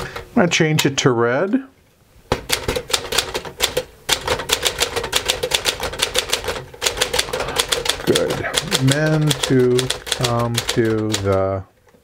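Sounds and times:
typewriter keystroke clacks: 2.3 - 11.6.

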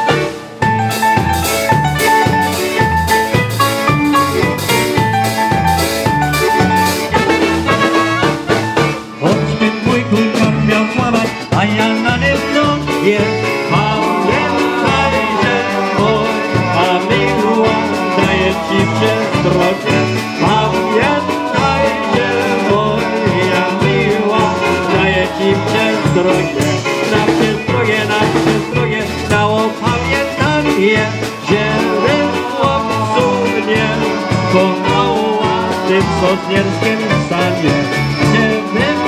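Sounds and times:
polka band playing: 0.0 - 39.0
pulsing bass beat: 0.0 - 39.0
man singing into a microphone: 9.2 - 39.0.

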